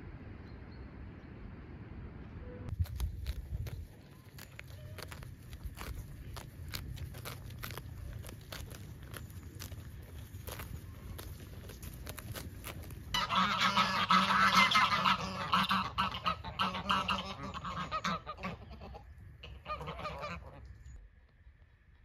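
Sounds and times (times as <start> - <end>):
geese honking: 13.1 - 20.7.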